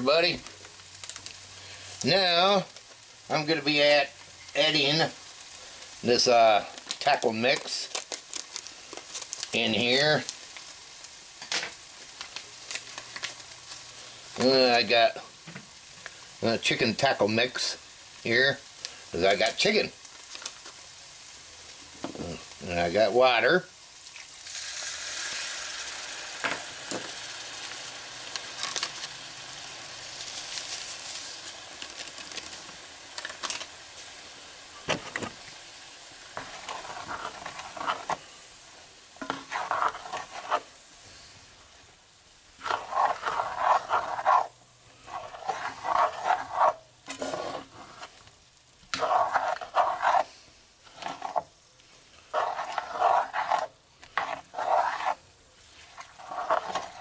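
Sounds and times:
water sizzling in hot pan: 0.0s - 57.0s
spatula scraping pan: 36.4s - 38.4s, 39.2s - 40.8s, 42.6s - 48.2s, 48.9s - 51.5s, 52.3s - 57.0s.

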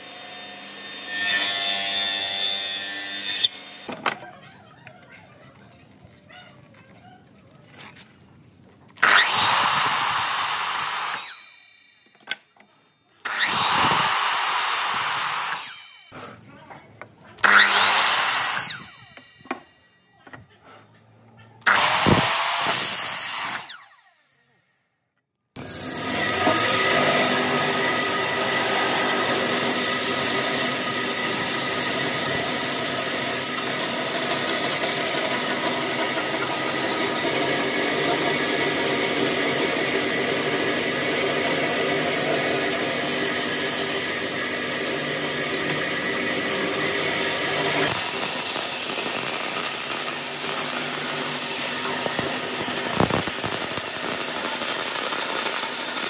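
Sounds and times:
bandsaw blade cutting wood: 0.0s - 4.2s, 9.0s - 16.4s, 17.4s - 19.8s, 21.6s - 24.4s, 25.6s - 56.0s
bandsaw humming: 9.0s - 16.3s, 17.4s - 19.8s, 25.6s - 56.0s.

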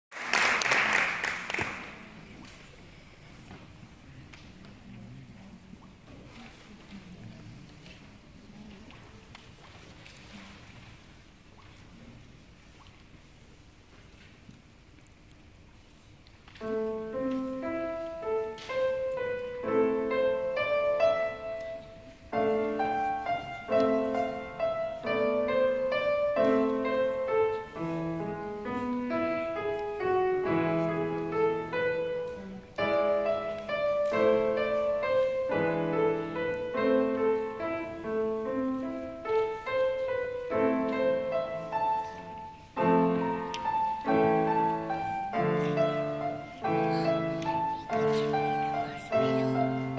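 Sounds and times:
grand piano playing: 16.6s - 49.9s.

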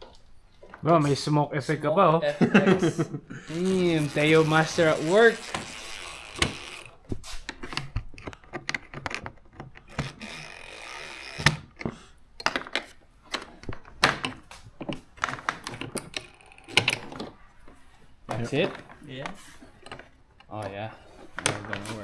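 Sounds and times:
hand ratchet clicking: 3.5s - 7.0s, 9.8s - 11.8s.

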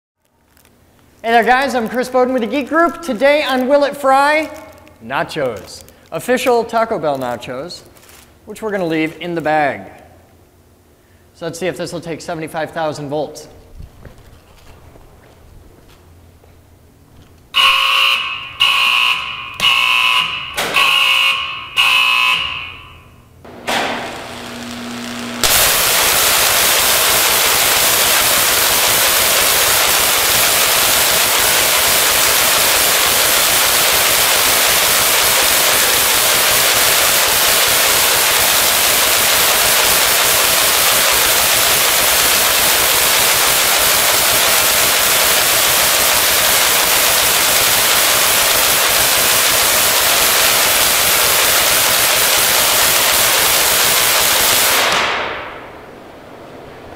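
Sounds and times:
warning alarm beeps: 17.6s - 23.3s
low hum: 22.4s - 35.5s, 55.2s - 56.9s
electric arc hissing: 23.5s - 55.4s.

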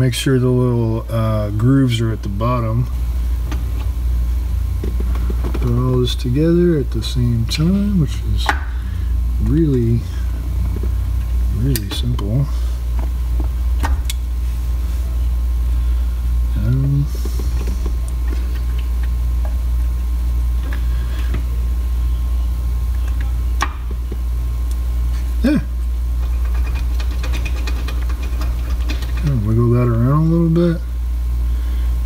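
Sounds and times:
pulsing low hum: 0.0s - 32.0s
clicks and knocks of parts: 26.2s - 29.4s.

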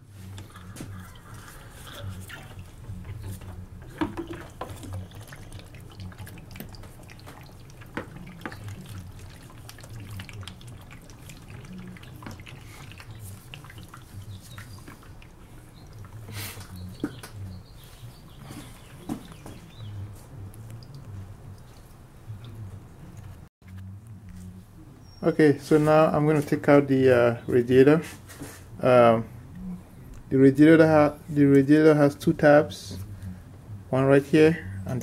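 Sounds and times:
low steady hum: 0.0s - 27.7s
plastic tank and hoses clicking: 3.0s - 9.3s.

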